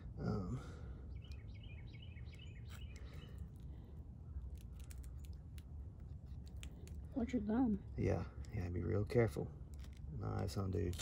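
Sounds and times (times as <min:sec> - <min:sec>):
low outdoor rumble: 0:00.0 - 0:11.0
small bird chirping: 0:01.0 - 0:06.4.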